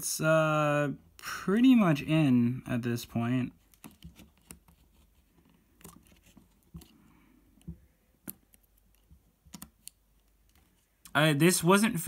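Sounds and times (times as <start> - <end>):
fingertips clicking parts into place: 7.5 - 11.1.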